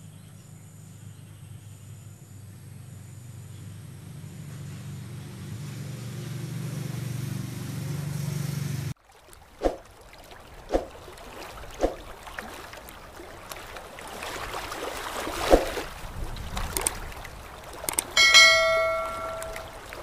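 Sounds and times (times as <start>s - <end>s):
water splashing: 6.4s - 20.0s
quick clicks: 16.7s - 17.0s, 17.8s - 18.2s
water drop plops: 17.9s - 19.8s
bright bell chime: 18.2s - 19.8s.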